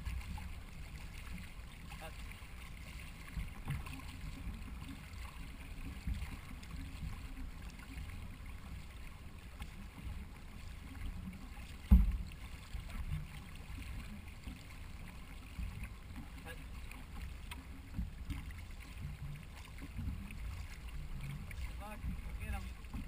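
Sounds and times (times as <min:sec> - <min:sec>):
water rumbling against canoe hull: 0:00.0 - 0:23.0
knocks on hull: 0:03.3 - 0:04.8, 0:11.6 - 0:13.4
loud thump against hull: 0:11.8 - 0:12.4.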